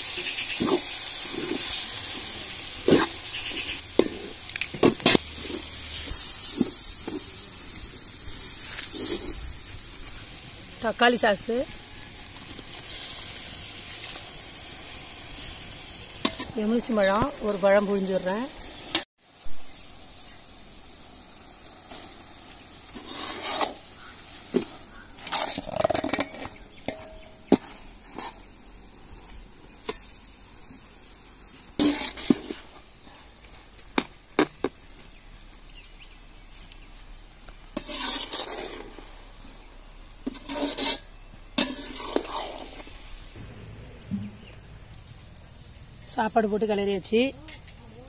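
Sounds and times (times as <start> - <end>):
ladle scraping metal pan: 22.9 - 28.4, 31.8 - 32.6, 37.8 - 39.0, 40.2 - 43.1.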